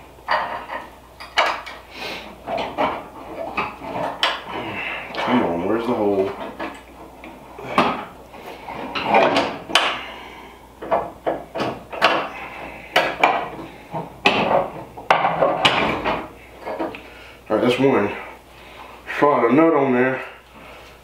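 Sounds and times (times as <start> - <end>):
bolts clicking and knocking: 0.2 - 1.8, 2.4 - 4.5, 6.2 - 10.1, 10.8 - 17.0.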